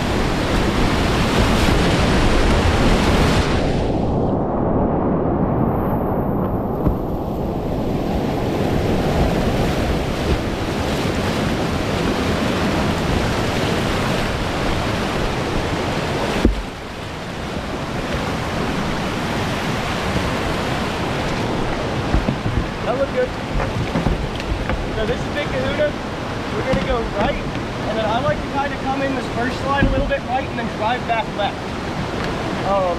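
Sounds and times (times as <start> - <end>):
whitewater rapids rushing: 0.0 - 3.8, 7.4 - 32.9.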